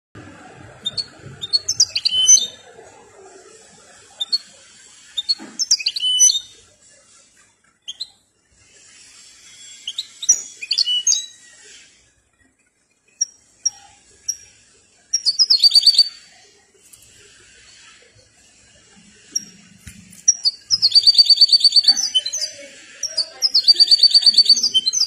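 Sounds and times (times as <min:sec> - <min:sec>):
goldfinch singing: 0:00.8 - 0:02.6, 0:05.2 - 0:06.5, 0:15.1 - 0:16.2, 0:20.2 - 0:25.0.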